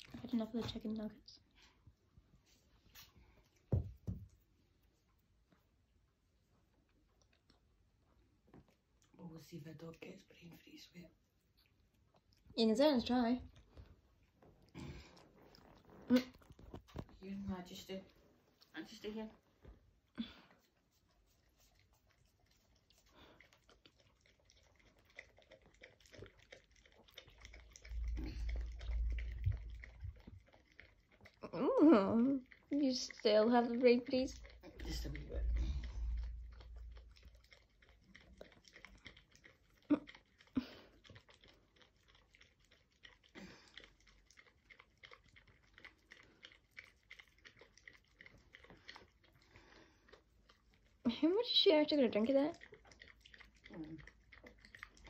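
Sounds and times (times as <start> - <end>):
dog lapping from paper cup: 20.9 - 55.0
low rumble: 27.8 - 30.3, 34.3 - 37.4.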